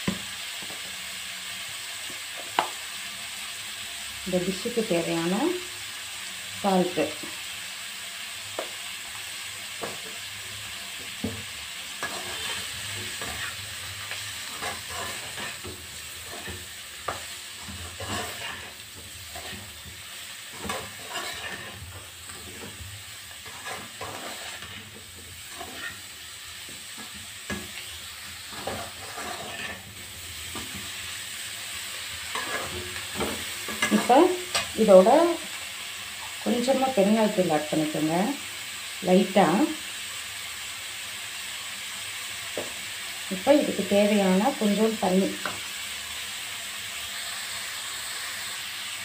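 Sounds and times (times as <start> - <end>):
vegetables sizzling in a pan: 0.0 - 49.0
skimmer scraping and clinking on pan: 20.5 - 22.8, 23.4 - 24.9, 25.5 - 26.0, 28.5 - 29.9.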